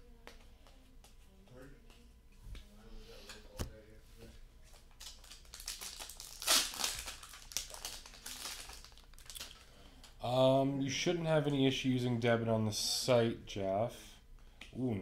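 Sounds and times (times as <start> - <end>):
foil wrapper crinkling and tearing: 4.8 - 9.7.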